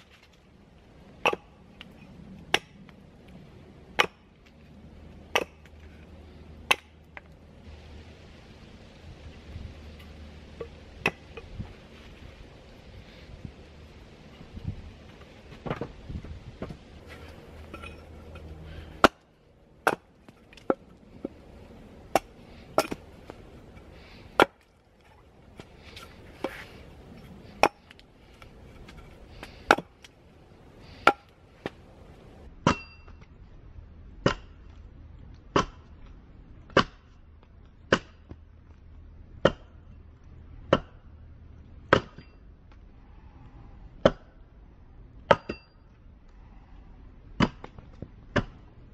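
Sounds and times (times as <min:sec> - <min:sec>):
hatchet chopping wood: 0:01.2 - 0:01.5, 0:02.5 - 0:02.8, 0:04.0 - 0:04.3, 0:05.3 - 0:05.7, 0:06.7 - 0:07.3, 0:19.0 - 0:20.8, 0:22.1 - 0:23.1, 0:24.4 - 0:24.7, 0:27.6 - 0:28.0, 0:28.9 - 0:30.1, 0:31.0 - 0:31.8, 0:34.2 - 0:34.5, 0:35.5 - 0:35.9, 0:36.7 - 0:37.1, 0:37.9 - 0:38.4, 0:39.4 - 0:39.8, 0:40.7 - 0:41.1, 0:41.9 - 0:42.2, 0:44.0 - 0:44.3, 0:47.4 - 0:48.6.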